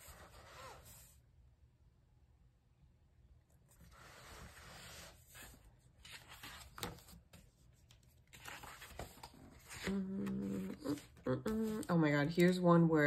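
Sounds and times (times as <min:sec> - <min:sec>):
paper pages turning: 0:03.7 - 0:12.7.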